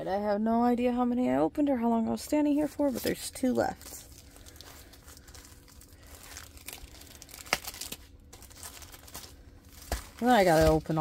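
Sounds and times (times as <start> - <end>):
plastic packaging crinkling: 2.9 - 11.0.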